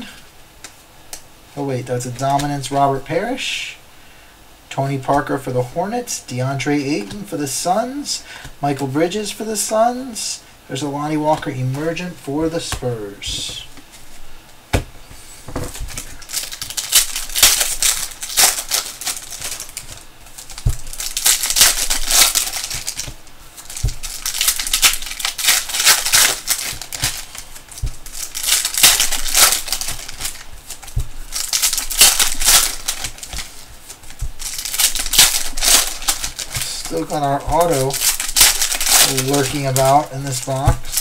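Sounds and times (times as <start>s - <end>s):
foil wrappers crinkling and tearing: 1.9s - 3.4s, 10.8s - 41.0s.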